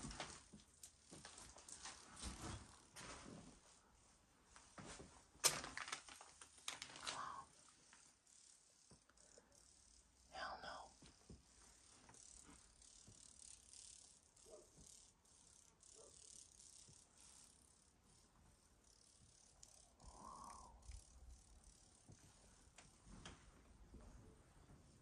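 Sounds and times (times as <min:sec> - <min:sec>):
light hiss: 0:06.2 - 0:23.6
small ticks and knocks: 0:08.8 - 0:10.0, 0:11.0 - 0:17.1.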